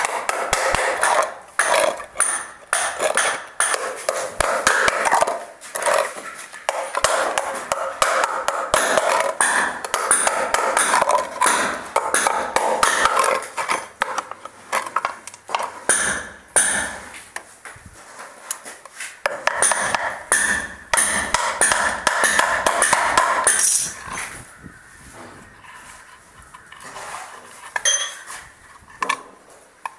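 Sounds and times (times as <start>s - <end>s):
pliers tapping nails into wood: 19.3s - 23.8s.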